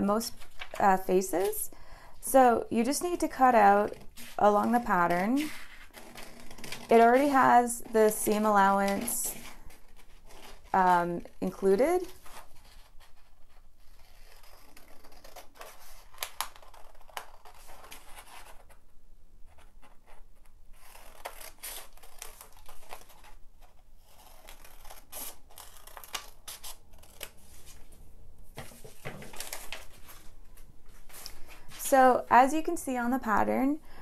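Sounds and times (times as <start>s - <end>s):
scissors snipping paper: 4.5s - 9.5s.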